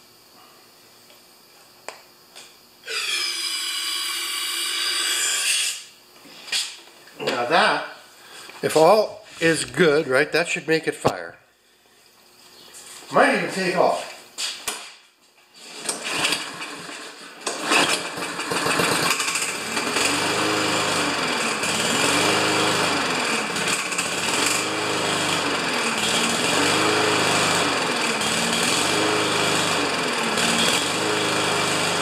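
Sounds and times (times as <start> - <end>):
lawn mower engine surging: 15.6 - 32.0.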